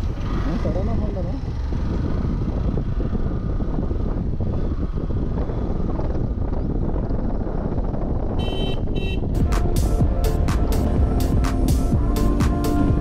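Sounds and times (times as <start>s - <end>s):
motorcycle engine: 0.0s - 13.0s
wind rumble on microphone: 0.0s - 13.0s.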